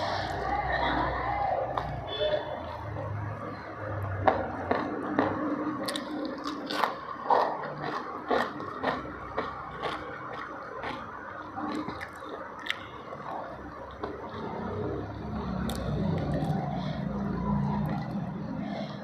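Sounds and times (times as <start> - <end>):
person chewing: 4.7 - 19.0
sharp mouth clicks: 5.8 - 14.5, 15.4 - 17.2.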